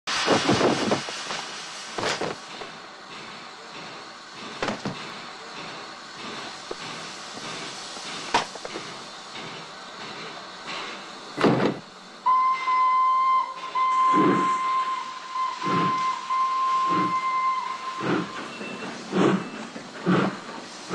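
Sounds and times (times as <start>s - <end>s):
loud bursts of steam: 0.1s - 20.9s
steam locomotive hissing: 0.1s - 20.9s
steam whistle: 12.2s - 18.5s.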